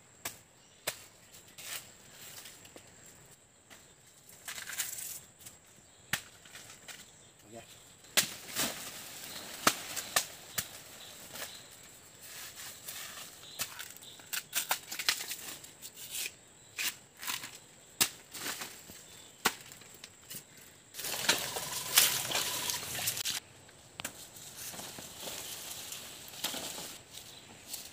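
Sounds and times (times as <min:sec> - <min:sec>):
plant stalks snapping: 0:13.6 - 0:15.5, 0:21.0 - 0:23.4
footsteps through wet undergrowth: 0:21.0 - 0:23.4.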